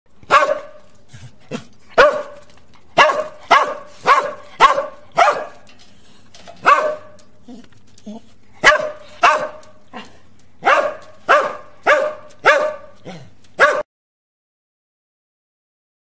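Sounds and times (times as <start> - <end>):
dog barking: 0.3 - 0.9, 2.0 - 5.7, 6.6 - 7.2, 8.6 - 9.8, 10.6 - 13.9.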